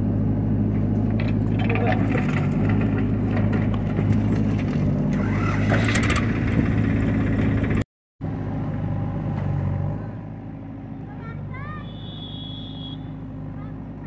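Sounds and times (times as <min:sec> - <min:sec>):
diesel engines running: 0:00.0 - 0:14.0
soil and brick rattling into trolley: 0:01.0 - 0:06.8.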